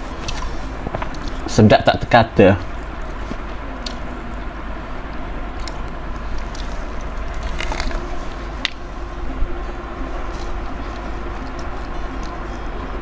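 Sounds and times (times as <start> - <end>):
person crunching and chewing food: 0.0 - 1.5, 5.6 - 8.9, 10.2 - 12.4
low hum and hiss: 0.0 - 13.0.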